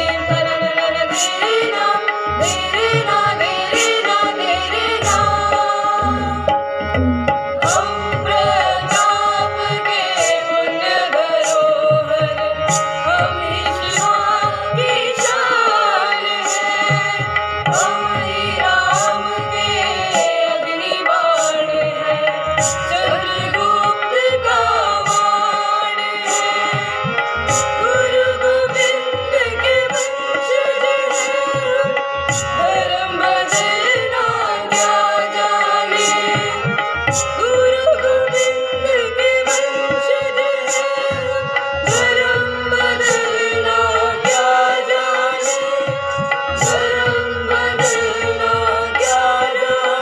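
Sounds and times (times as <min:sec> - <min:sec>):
school choir singing: 0:00.0 - 0:27.0, 0:32.6 - 0:36.8, 0:41.9 - 0:45.9, 0:46.5 - 0:50.0
hand drum beats: 0:05.0 - 0:08.6.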